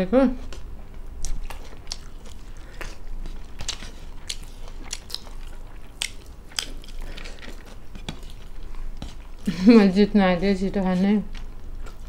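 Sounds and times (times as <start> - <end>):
close chewing: 0.4 - 10.0, 10.8 - 12.0.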